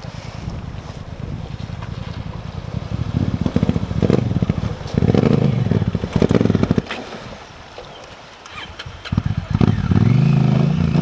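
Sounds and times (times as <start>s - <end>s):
water splashing: 0.0s - 11.0s
motorcycle engine revving: 1.5s - 7.0s, 8.5s - 11.0s.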